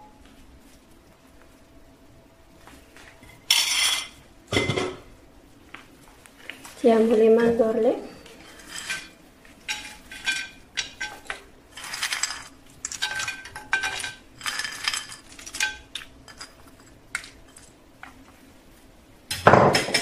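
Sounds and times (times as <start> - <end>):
almonds clinking on ceramic: 9.7 - 17.7.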